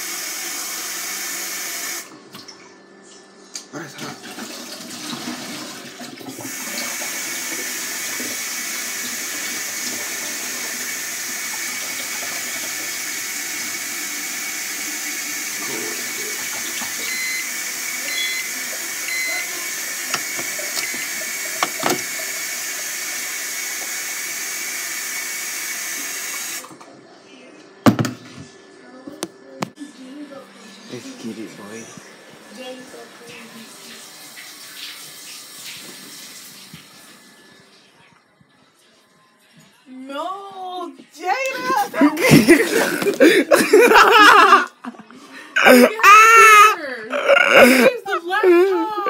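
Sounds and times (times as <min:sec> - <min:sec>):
faucet running into steel sink: 0:04.1 - 0:26.7.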